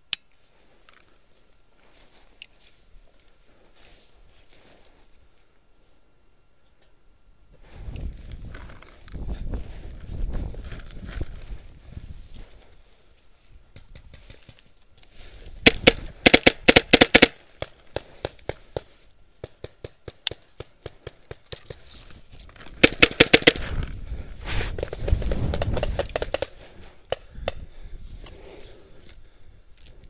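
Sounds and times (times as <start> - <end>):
paintball marker firing: 15.6 - 21.6, 22.8 - 23.7, 24.7 - 27.6.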